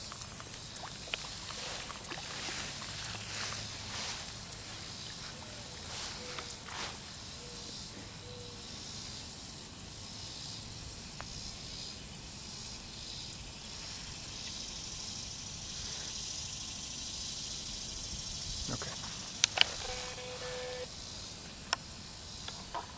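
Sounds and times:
high-pitched insect trill: 0:00.0 - 0:22.9
steady background hiss: 0:00.0 - 0:22.9
sharp clicks: 0:19.4 - 0:20.6.

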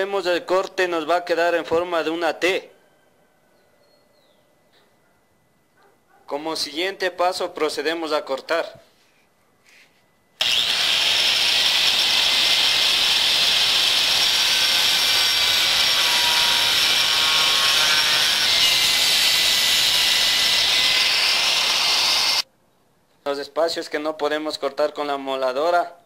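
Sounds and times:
angle grinder cutting steel: 0:10.4 - 0:22.4.

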